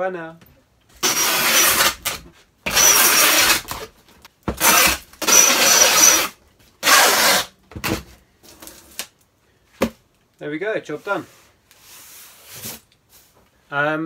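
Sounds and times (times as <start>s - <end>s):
packing tape pulled from tape gun: 2.8s - 3.7s, 4.6s - 7.5s.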